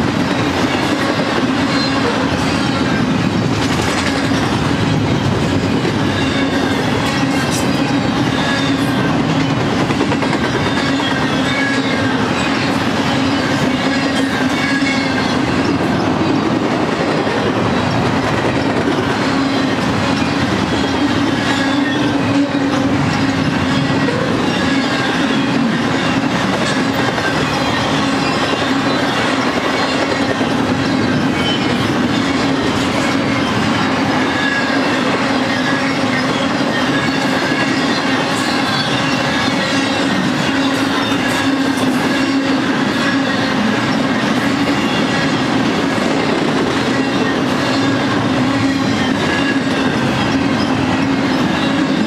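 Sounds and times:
train wheels rolling on rail: 0:00.0 - 0:52.0.

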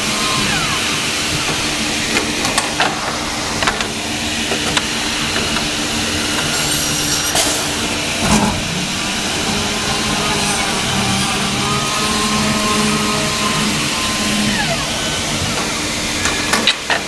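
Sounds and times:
wood milling machine running: 0:00.0 - 0:17.0.

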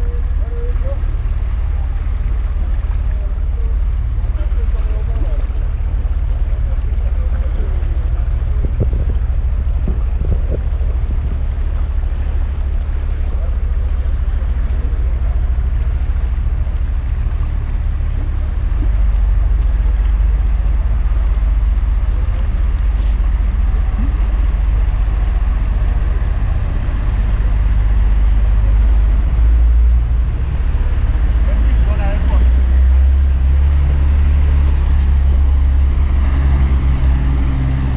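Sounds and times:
heavy low rumble: 0:00.0 - 0:37.9
river rushing: 0:00.0 - 0:37.9.

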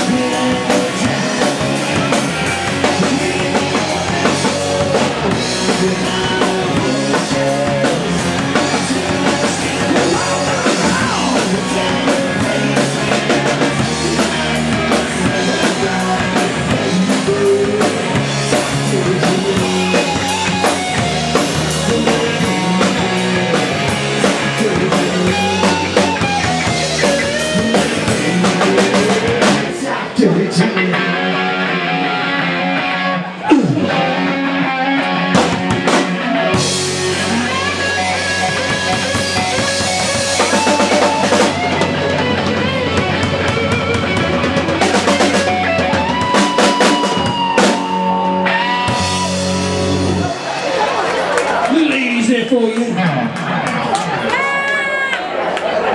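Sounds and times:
bending electric guitar notes: 0:00.0 - 0:51.5
live rock band playing: 0:00.0 - 0:55.9.

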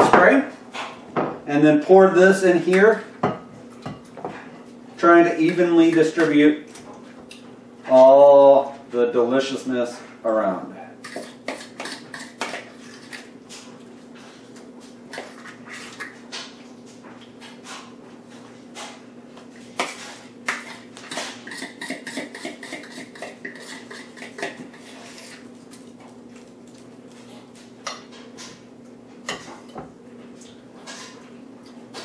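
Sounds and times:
utensil scraping ceramic bowl: 0:20.6 - 0:25.5.

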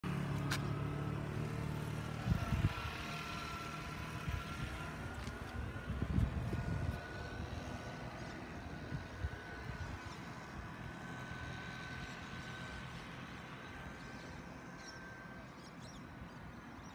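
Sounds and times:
distant vehicle engine drone: 0:00.0 - 0:16.9
faint high whine: 0:02.0 - 0:16.9.

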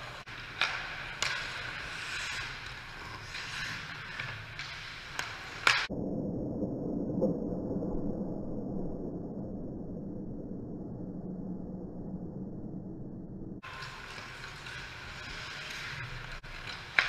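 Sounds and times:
hockey sticks and puck cracking: 0:00.0 - 0:05.9, 0:13.6 - 0:17.0
skates scraping on ice: 0:00.0 - 0:05.9, 0:13.6 - 0:17.0
dull low rumble: 0:05.9 - 0:13.6.

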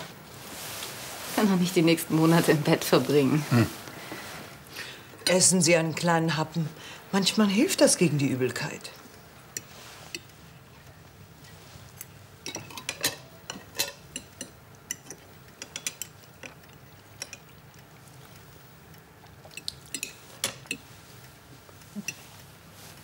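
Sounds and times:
fork clinking on china plate: 0:19.5 - 0:20.9.

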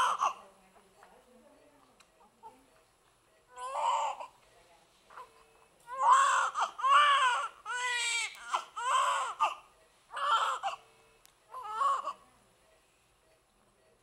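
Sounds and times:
newborn baby crying: 0:00.0 - 0:00.4, 0:03.5 - 0:04.4, 0:05.9 - 0:10.8, 0:11.5 - 0:12.2.

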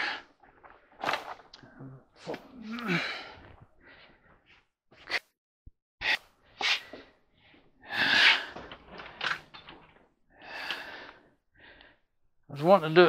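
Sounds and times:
man breathing hard: 0:06.0 - 0:09.4, 0:10.3 - 0:12.1.

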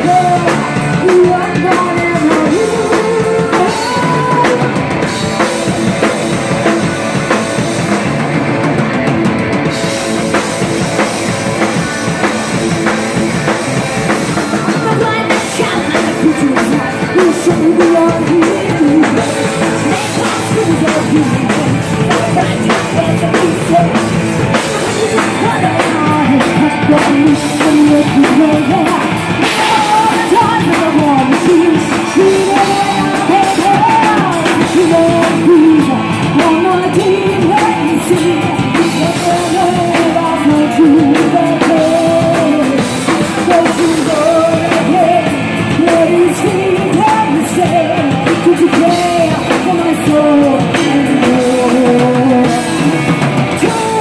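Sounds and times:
woman singing: 0:00.0 - 0:07.8, 0:09.8 - 0:54.0
bass guitar: 0:00.0 - 0:54.0
drum kit: 0:00.0 - 0:54.0
electric guitars: 0:00.0 - 0:54.0.

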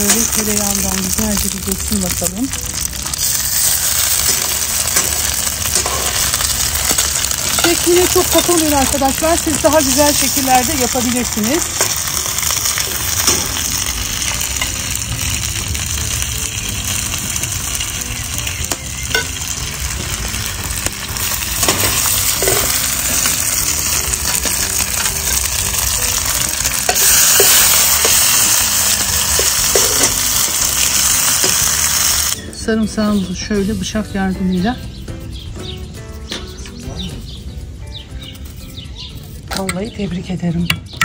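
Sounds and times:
dumplings sizzling in butter: 0:00.0 - 0:33.6
metal tongs clicking on pan: 0:04.2 - 0:08.6, 0:26.9 - 0:30.3.

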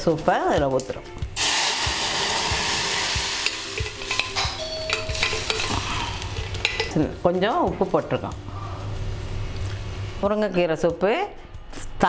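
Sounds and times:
soup sizzling in hot oil: 0:01.4 - 0:06.9.

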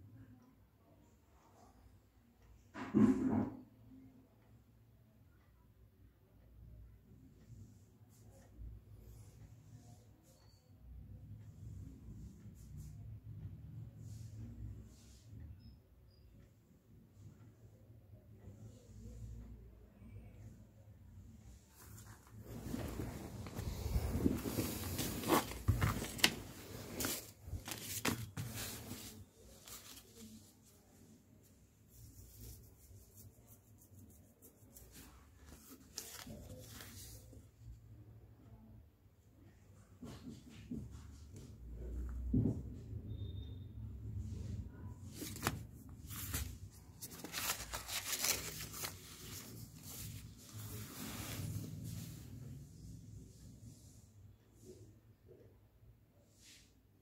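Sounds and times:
cloth rustling: 0:21.7 - 0:30.9, 0:31.9 - 0:37.4, 0:45.1 - 0:52.4.

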